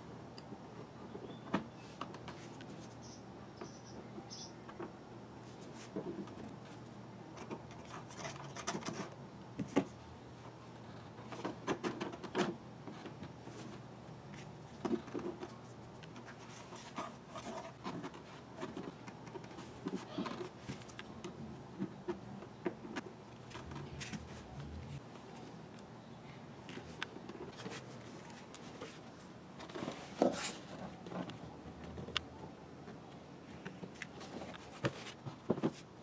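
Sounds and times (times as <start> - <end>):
steady low hum: 12.4 - 34.7.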